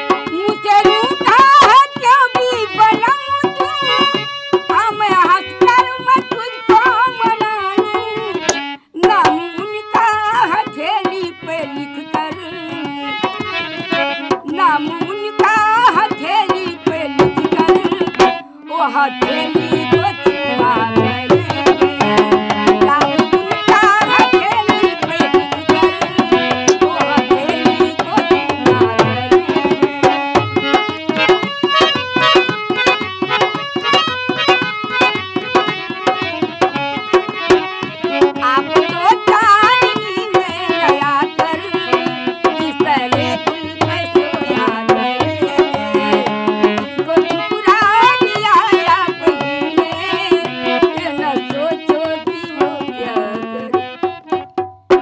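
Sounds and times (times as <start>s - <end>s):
barrel drum played by hand: 0.0s - 55.0s
woman singing: 0.1s - 54.1s.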